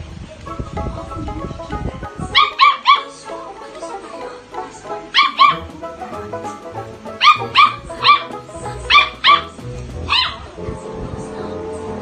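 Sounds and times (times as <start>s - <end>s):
dog yapping: 2.3s - 3.2s, 5.1s - 5.7s, 7.2s - 8.3s, 8.9s - 10.5s.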